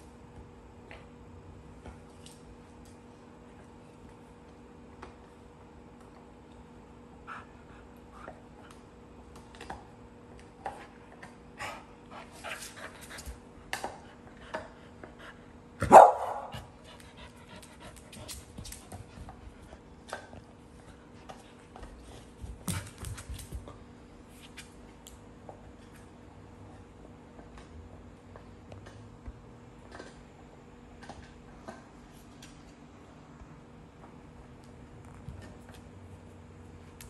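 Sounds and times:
dog bark: 15.8 - 16.5.

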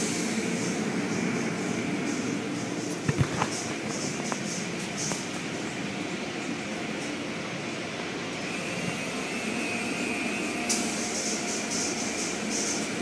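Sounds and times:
car wash machinery rumbling: 0.0 - 13.0.

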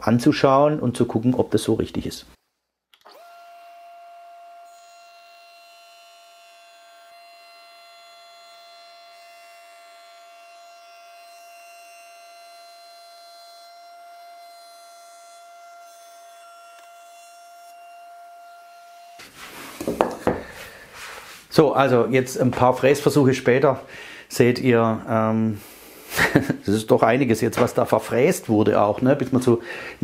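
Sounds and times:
router high whine: 3.0 - 19.3.

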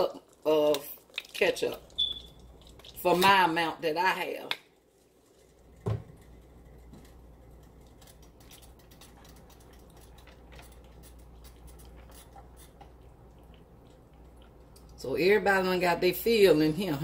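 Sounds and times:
steady low hum: 4.8 - 16.2
thump: 5.8 - 6.1.

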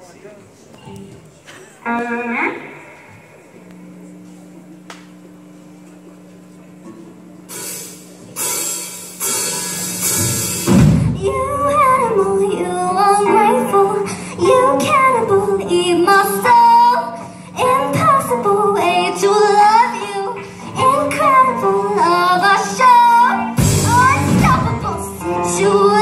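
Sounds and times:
steady low hum: 0.1 - 26.0
cymbal wash: 7.5 - 11.9
heavy drum and bass hit: 7.5 - 12.0, 23.6 - 24.9
rock band playing live: 7.5 - 26.0
girl singing lead: 11.0 - 26.0.

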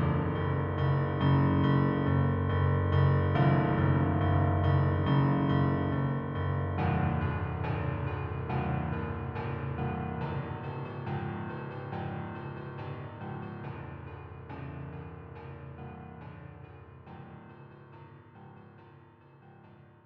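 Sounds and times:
keyboard playing sustained chords: 0.0 - 14.9.

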